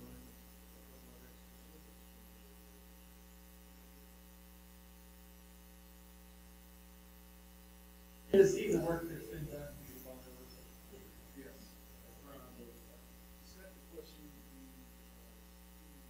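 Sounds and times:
electrical mains hum: 0:00.0 - 0:16.0
loud voice: 0:08.3 - 0:10.0.

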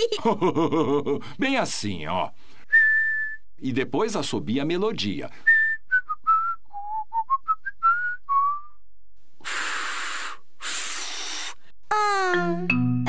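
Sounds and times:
person whistling a tune: 0:02.7 - 0:03.4, 0:05.5 - 0:08.8
child blowing breathy puffs: 0:09.4 - 0:11.7.

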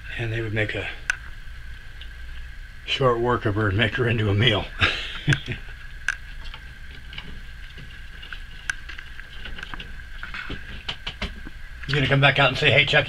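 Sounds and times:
faint high-pitched hum: 0:00.0 - 0:13.0
sharp clicks and light taps: 0:05.2 - 0:12.0.

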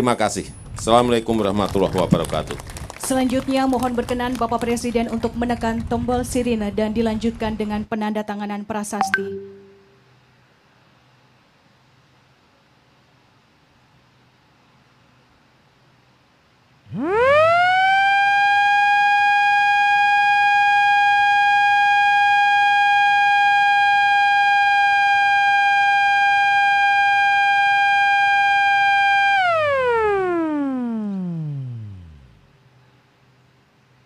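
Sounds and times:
siren wailing: 0:16.9 - 0:32.4.

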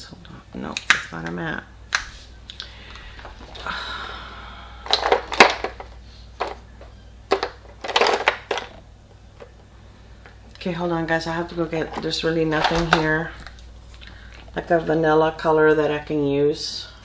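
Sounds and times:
makeup cases clicking and clattering: 0:04.8 - 0:06.6, 0:07.3 - 0:08.8, 0:11.7 - 0:13.5.

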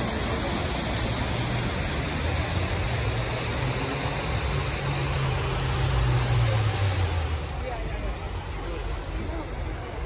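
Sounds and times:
waterfall pouring into pool: 0:00.0 - 0:06.8.

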